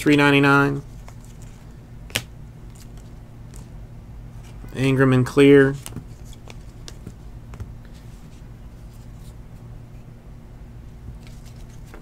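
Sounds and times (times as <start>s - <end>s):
low electrical hum: 0.0s - 12.0s
cards being flipped through: 0.8s - 3.7s, 5.7s - 9.4s, 11.2s - 12.0s.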